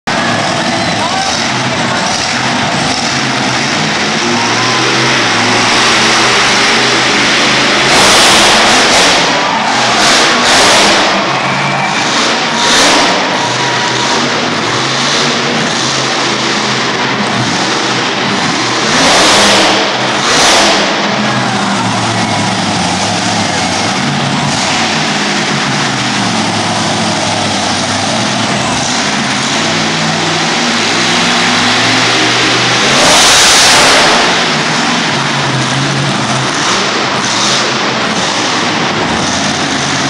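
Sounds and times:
monster truck engines revving: 0:00.0 - 0:40.0.

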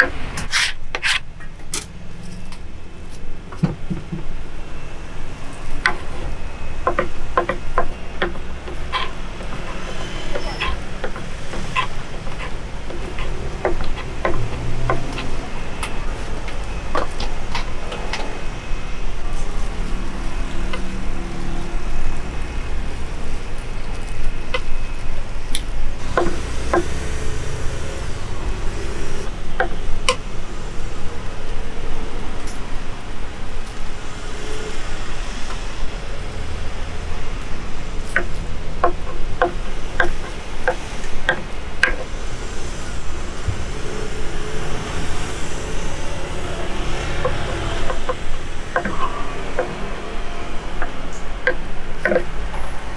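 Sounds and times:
road traffic passing: 0:00.0 - 0:52.9
sharp clicks and knocks: 0:05.8 - 0:18.4, 0:25.5 - 0:27.0, 0:38.0 - 0:42.2, 0:46.9 - 0:49.9, 0:50.8 - 0:52.6.

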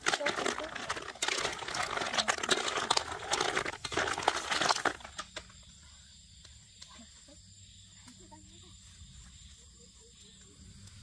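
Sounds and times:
snail shells clattering in metal pan: 0:00.0 - 0:05.5.

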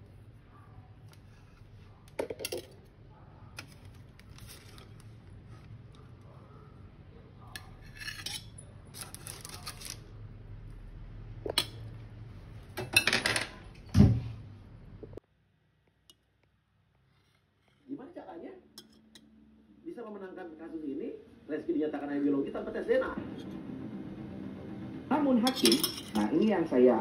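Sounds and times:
baking paper rustling: 0:03.6 - 0:05.8, 0:08.9 - 0:10.2.

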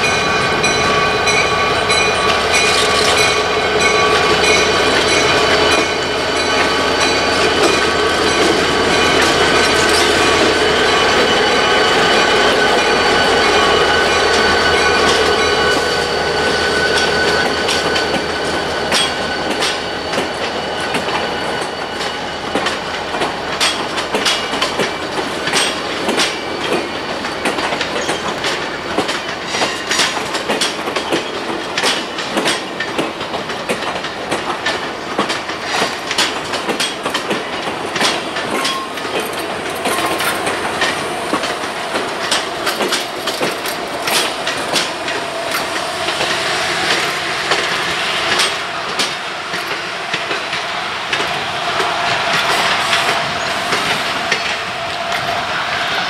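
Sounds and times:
wheels clacking over rail joints: 0:00.0 - 0:55.7
diesel locomotive engine: 0:00.0 - 0:56.0
rumble of rolling train cars: 0:00.0 - 0:56.0.

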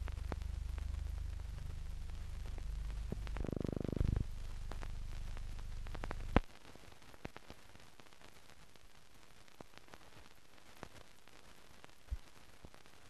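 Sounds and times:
film soundtrack hum: 0:00.0 - 0:06.4
crackles and clicks: 0:00.0 - 0:13.0.

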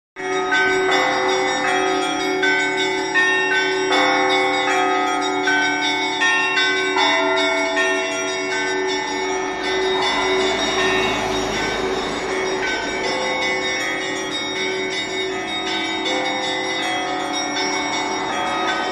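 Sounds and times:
church bells ringing: 0:00.2 - 0:18.9
hum of large bell: 0:00.2 - 0:18.9
rushing noise: 0:09.5 - 0:14.8.

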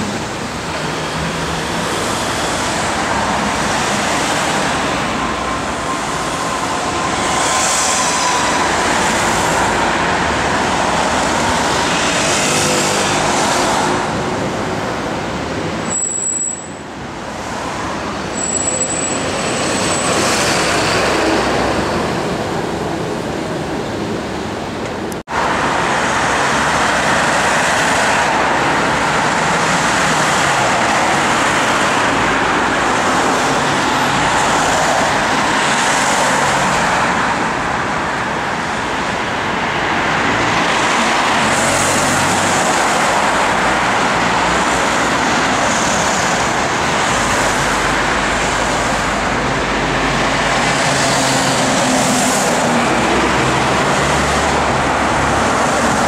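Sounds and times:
road traffic passing: 0:00.0 - 0:56.0
high squeals: 0:18.3 - 0:20.3.

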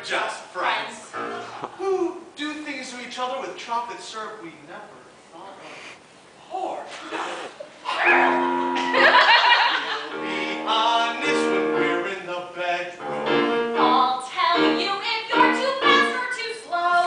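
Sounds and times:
piano accompaniment: 0:01.1 - 0:01.7, 0:08.0 - 0:12.3, 0:12.9 - 0:16.3
person singing: 0:10.0 - 0:12.3.

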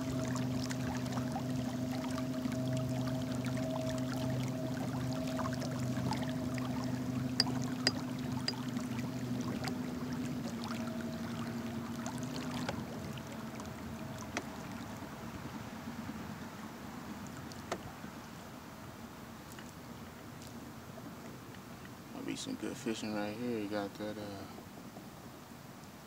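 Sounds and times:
water washing along hull: 0:00.0 - 0:26.0.

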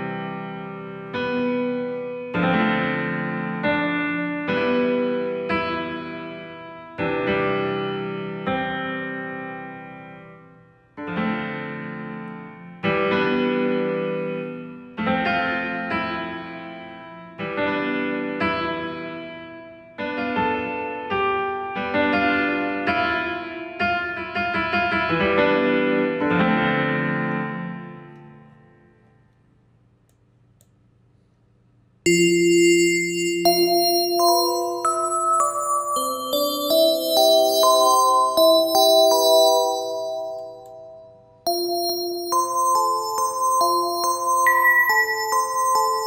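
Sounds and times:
bell-like synth tone: 0:32.1 - 0:46.0
keyboard sustained chords: 0:32.1 - 0:46.0.

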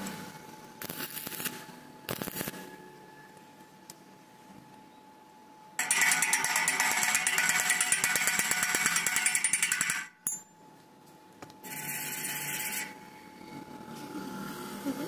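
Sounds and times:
hammer tapping on metal: 0:05.8 - 0:10.5.

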